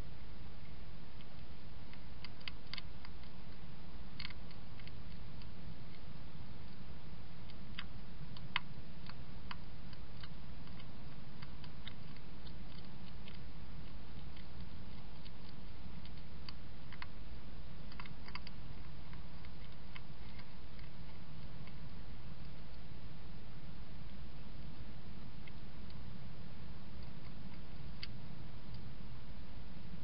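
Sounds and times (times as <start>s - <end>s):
steady low hum: 0.0s - 30.0s
hedgehog chewing clicks and crunches: 0.6s - 6.8s, 7.4s - 23.0s, 26.8s - 29.0s.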